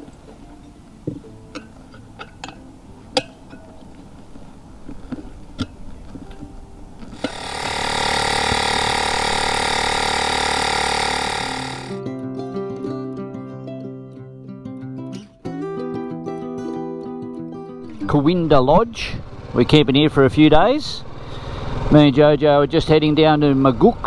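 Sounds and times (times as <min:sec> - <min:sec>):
guitar music: 0:00.0 - 0:04.3, 0:11.6 - 0:19.7
loud mechanical buzzing: 0:07.2 - 0:12.0.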